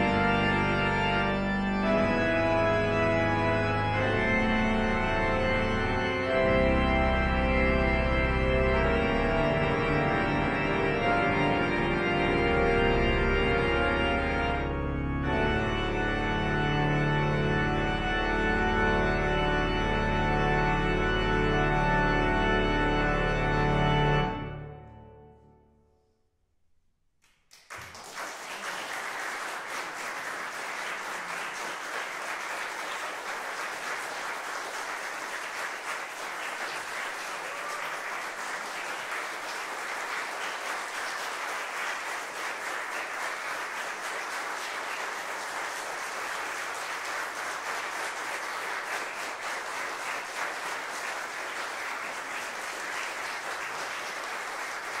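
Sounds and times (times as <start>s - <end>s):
audience applauding: 0.0s - 12.7s, 27.5s - 55.0s.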